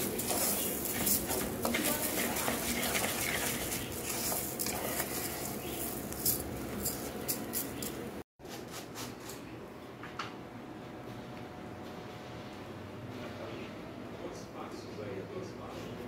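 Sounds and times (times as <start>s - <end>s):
utensils and pots clinking: 0.0s - 8.2s.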